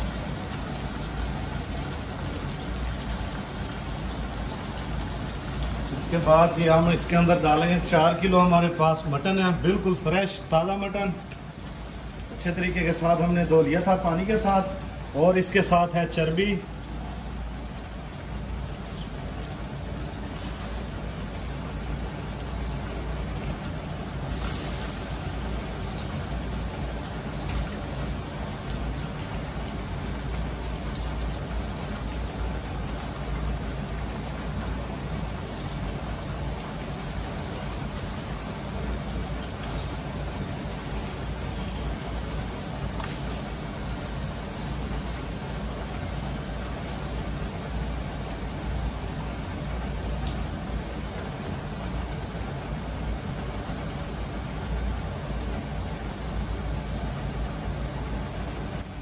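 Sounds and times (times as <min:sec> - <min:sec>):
meat sizzling in oil: 0:17.4 - 0:31.3, 0:37.1 - 0:45.7
ghee sizzling in a pan: 0:19.9 - 0:21.5, 0:24.1 - 0:27.9.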